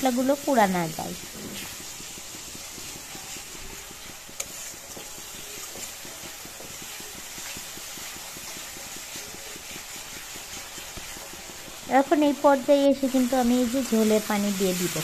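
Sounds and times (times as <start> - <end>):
metal spatula stirring: 0.0 - 13.9
paste sizzling and bubbling: 0.0 - 15.0
spatula tap: 0.6 - 12.4.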